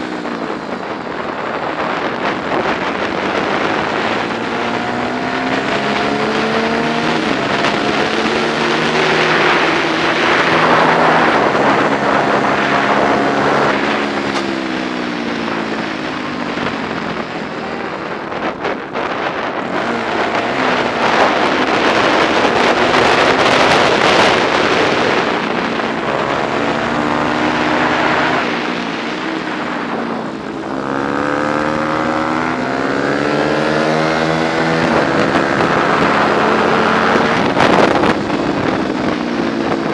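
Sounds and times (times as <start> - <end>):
motorcycle engine revving: 0.0 - 39.9
wind rush: 0.0 - 39.9.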